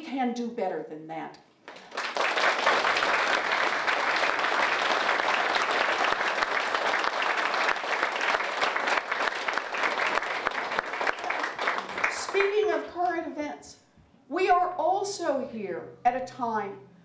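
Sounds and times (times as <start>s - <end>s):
crowd applauding: 1.7s - 12.9s.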